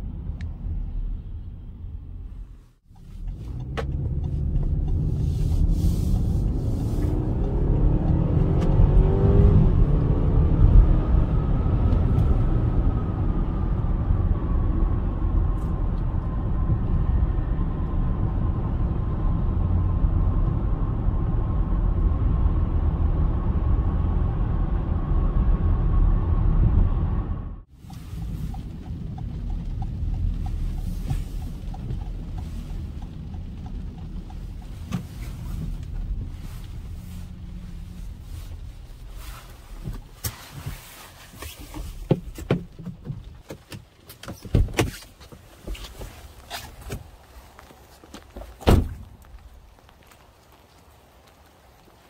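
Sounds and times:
tyre and road noise in car: 0.0s - 52.0s
car door thuds: 48.6s - 49.1s.

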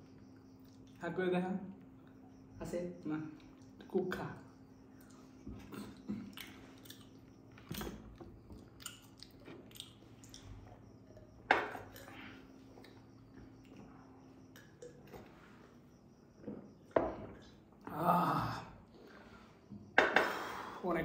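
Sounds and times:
chewing: 5.0s - 13.8s.

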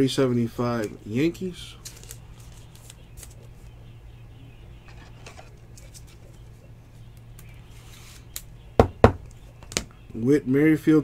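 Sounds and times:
low electrical hum: 0.0s - 11.0s
card and plastic rustling: 0.8s - 3.8s, 4.8s - 8.3s.

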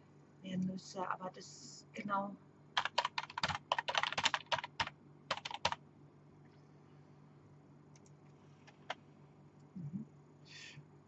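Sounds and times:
computer keyboard typing: 2.8s - 5.8s.

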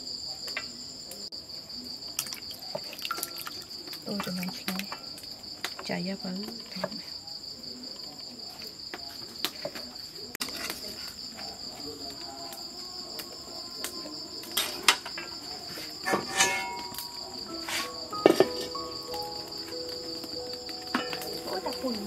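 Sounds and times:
crickets chirring: 0.0s - 22.0s
kitchen utensils clicking: 16.0s - 19.2s, 20.8s - 22.0s.

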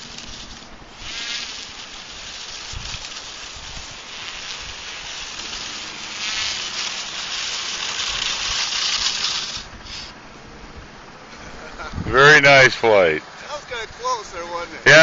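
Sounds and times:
model plane propeller buzzing: 0.0s - 10.2s.

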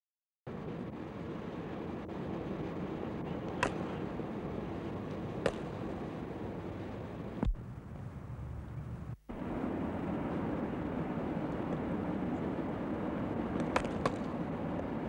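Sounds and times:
steady hissing background: 0.5s - 15.0s
cricket bat striking ball: 3.5s - 4.0s, 5.4s - 5.9s, 13.6s - 14.4s
dull thump: 7.4s - 7.6s.

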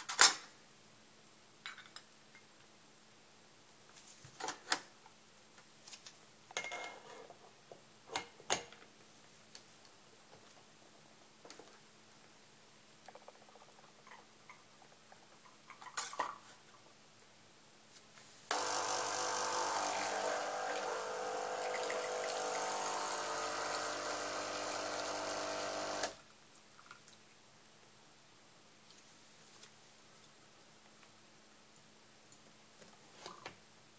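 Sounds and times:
espresso machine pump humming: 18.5s - 26.2s.

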